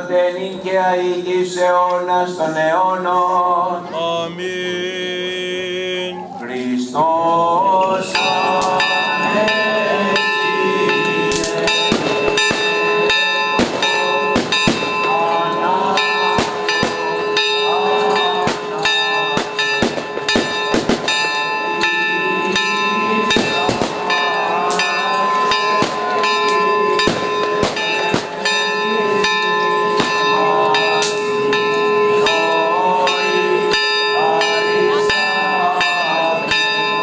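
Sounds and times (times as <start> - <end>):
crowd voices: 0.0 - 37.0
church bells pealing: 3.0 - 37.0.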